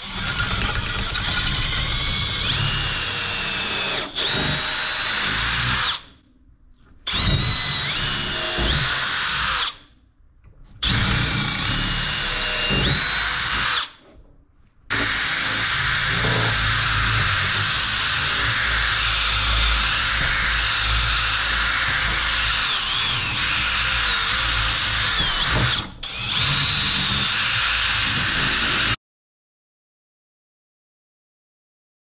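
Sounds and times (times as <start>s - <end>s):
cordless drill whining: 0.0s - 6.0s, 7.1s - 9.8s, 10.8s - 14.0s, 14.9s - 29.0s.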